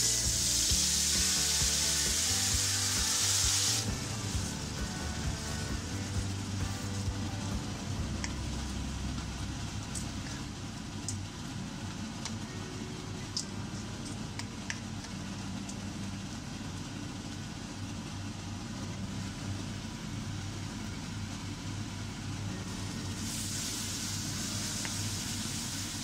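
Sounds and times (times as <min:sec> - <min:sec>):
mango sizzling in oil: 0:00.0 - 0:07.4, 0:22.9 - 0:26.0
steady low hum: 0:00.0 - 0:26.0.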